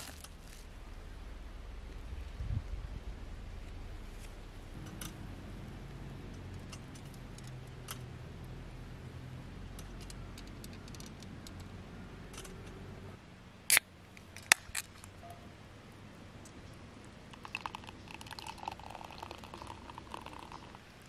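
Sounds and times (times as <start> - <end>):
sharp crack: 13.7 - 15.2.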